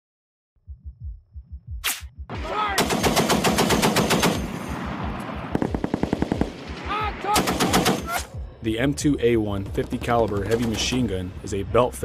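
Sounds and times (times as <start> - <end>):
low thumping pulse: 0.6 - 2.4
automatic machine-gun fire: 2.8 - 4.6, 5.5 - 6.7.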